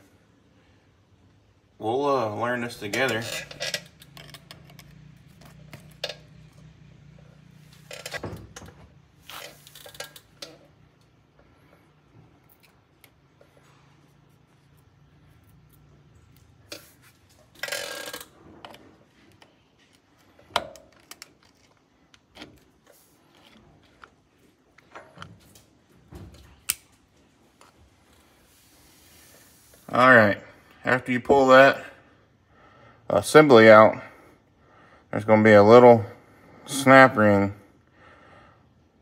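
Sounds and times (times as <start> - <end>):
metal parts scraping rattles: 2.7 - 6.5, 7.6 - 8.3, 16.7 - 19.0.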